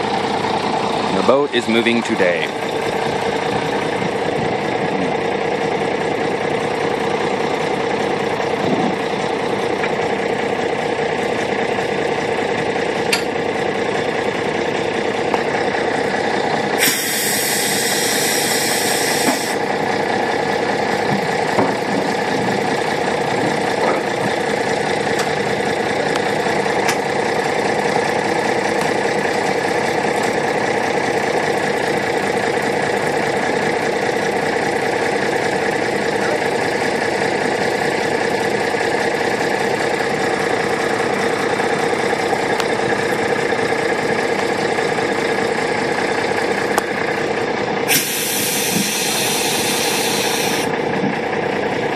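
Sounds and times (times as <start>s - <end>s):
truck engine idling: 0.0s - 51.9s
air hiss: 16.8s - 19.6s, 47.9s - 50.7s.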